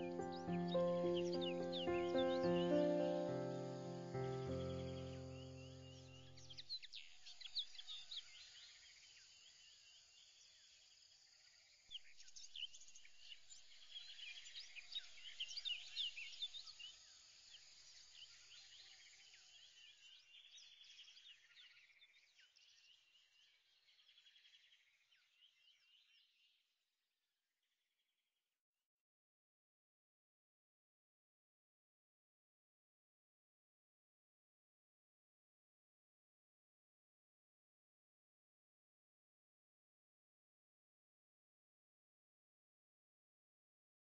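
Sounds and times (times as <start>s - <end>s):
chorus of bird-like chirping: 0.0s - 9.6s.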